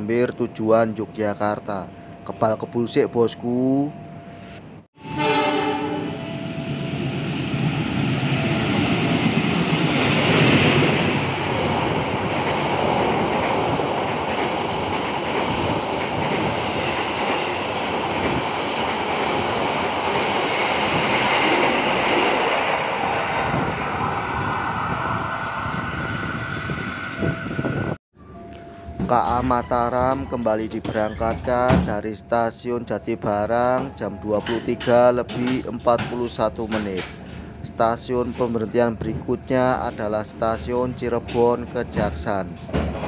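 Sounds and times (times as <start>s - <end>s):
train wheels clattering on rails: 8.0s - 22.8s, 33.1s - 43.0s.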